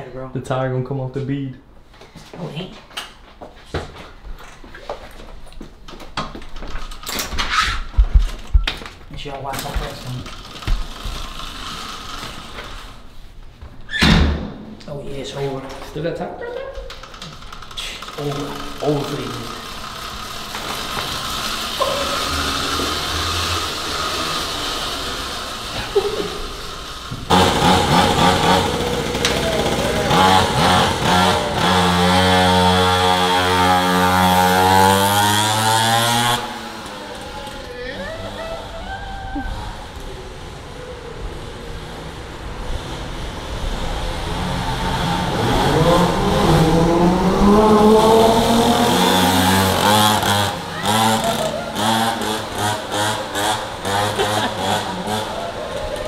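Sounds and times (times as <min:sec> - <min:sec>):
two-stroke dirt bike engine: 0:09.6 - 0:12.9, 0:17.1 - 0:38.8, 0:39.8 - 0:56.0.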